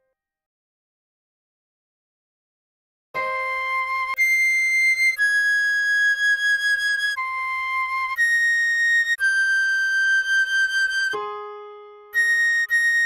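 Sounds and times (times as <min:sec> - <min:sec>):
recorder playing slow melody: 0:03.2 - 0:13.0.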